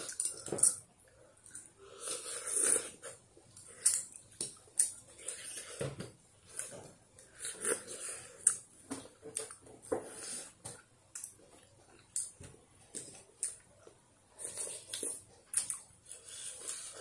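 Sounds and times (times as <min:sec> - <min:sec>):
slurping and chewing: 0:01.4 - 0:05.8, 0:06.5 - 0:08.7, 0:11.2 - 0:17.0.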